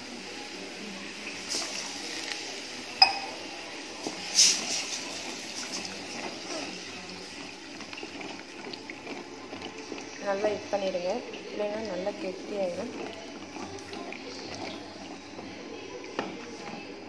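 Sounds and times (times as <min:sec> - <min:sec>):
spatula stirring thick gravy: 0:04.1 - 0:17.0.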